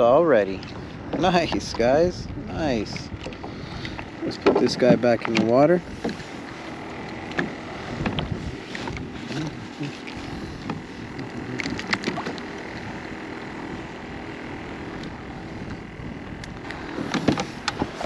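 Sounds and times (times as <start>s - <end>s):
water lapping against kayak hull: 0.0s - 18.0s
wind on microphone: 0.7s - 5.0s, 5.7s - 18.0s
light clicks and knocks: 2.9s - 6.3s.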